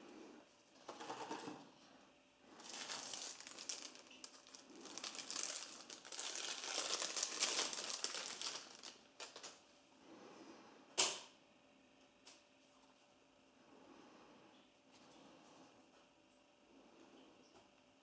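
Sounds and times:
plastic packaging crinkling: 0:02.5 - 0:09.6.

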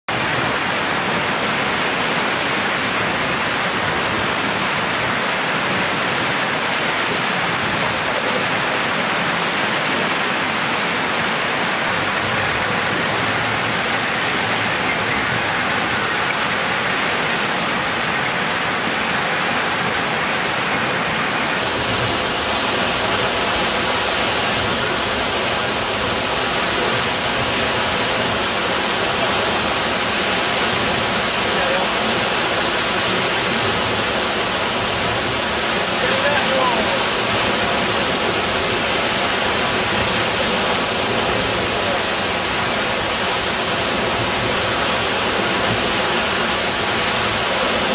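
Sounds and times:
churning water of breaking waves: 0:00.0 - 0:47.9.

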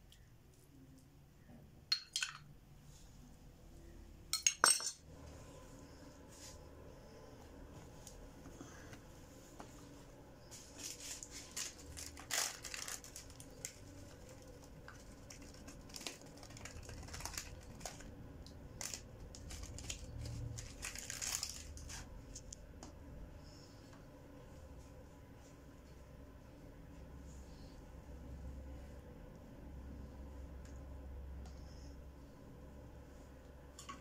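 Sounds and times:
plastic bag crinkling: 0:10.7 - 0:22.2.

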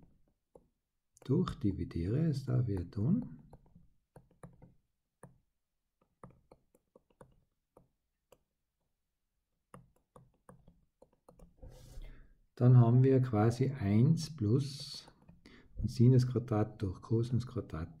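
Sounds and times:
stylus tapping on tablet screen: 0:00.0 - 0:01.8, 0:02.4 - 0:12.0.

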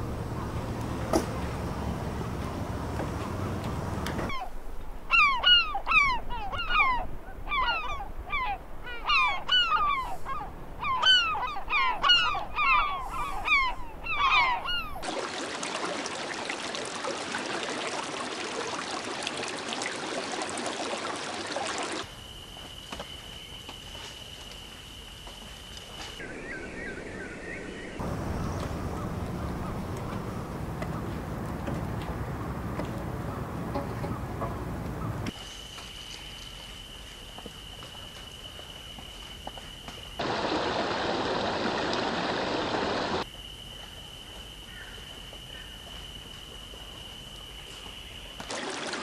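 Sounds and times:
gull calling: 0:04.2 - 0:15.1, 0:33.1 - 0:35.4.

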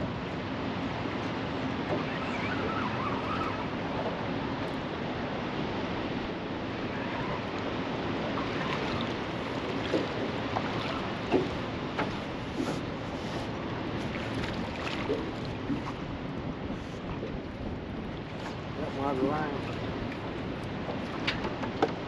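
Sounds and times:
moving water: 0:00.0 - 0:22.0.

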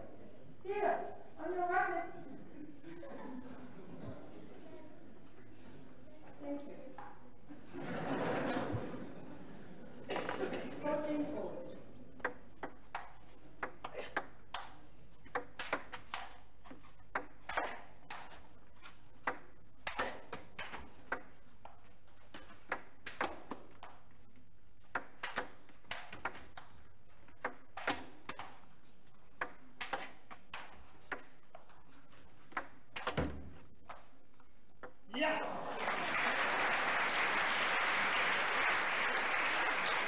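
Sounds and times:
table tennis ball hitting bats: 0:12.2 - 0:24.1, 0:24.8 - 0:31.7, 0:32.3 - 0:34.1.

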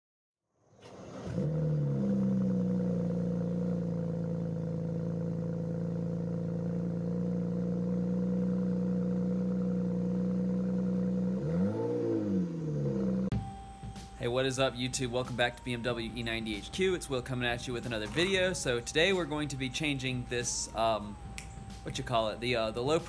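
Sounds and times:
car engine starting and idling: 0:00.7 - 0:23.0
sharp click: 0:21.4 - 0:21.7.

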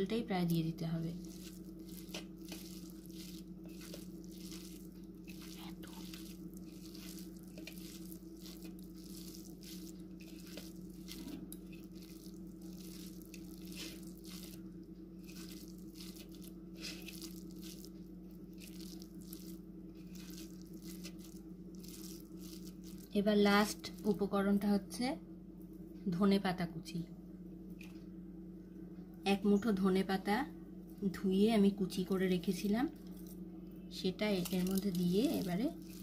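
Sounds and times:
steady low hum: 0:00.0 - 0:36.0
fingers mashing wet food: 0:01.2 - 0:23.1.

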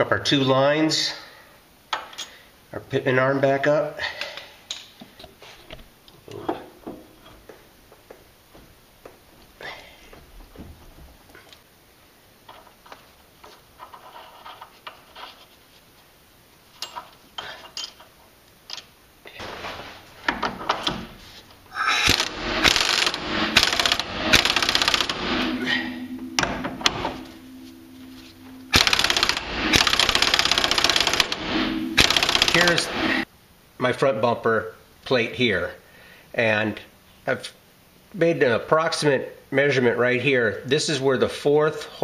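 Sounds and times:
steady hum: 0:19.3 - 0:33.3
loud burst: 0:21.9 - 0:33.2
rapid mechanical rattling: 0:22.0 - 0:26.4, 0:28.7 - 0:33.2.

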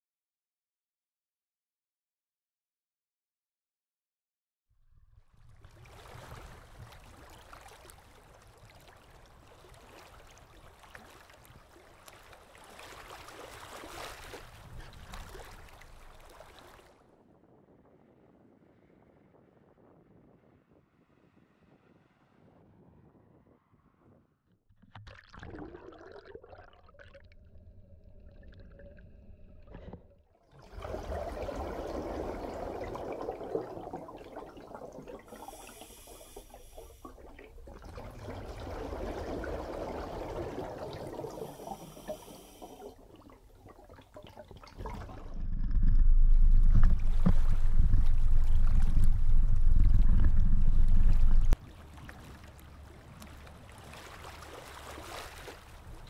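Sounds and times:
muffled water sloshing and bubbling: 0:05.2 - 0:17.2, 0:24.7 - 0:56.0
loud low rumble: 0:45.1 - 0:51.6.

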